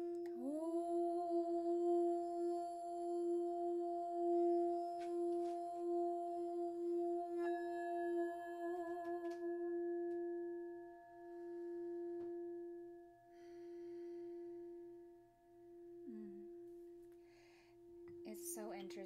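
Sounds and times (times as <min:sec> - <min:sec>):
mallet rimming singing bowl: 0:00.0 - 0:19.0
singing bowl ringing: 0:00.0 - 0:19.0.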